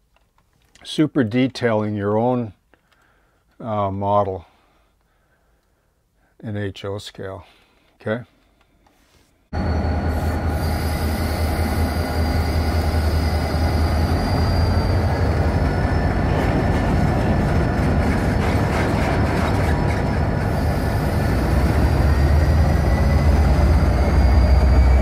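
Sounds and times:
diesel locomotive engine drone: 9.5 - 25.0
train rumbling roll: 9.5 - 25.0
high wheel squeal: 9.6 - 18.7, 19.4 - 25.0.

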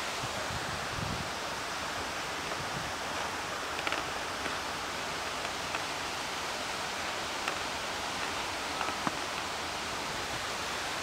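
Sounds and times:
outdoor background noise: 0.0 - 11.0
faint ticks: 2.4 - 9.6.

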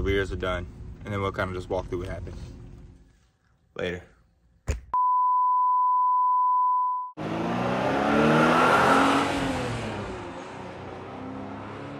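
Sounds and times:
electronic beep: 5.0 - 7.2
car engine revving: 7.2 - 11.9.

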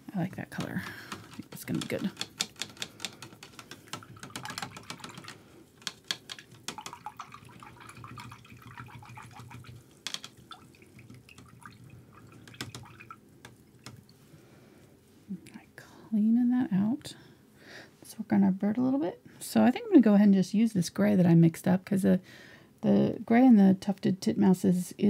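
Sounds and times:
light rapid taps and clicks: 0.3 - 14.1.

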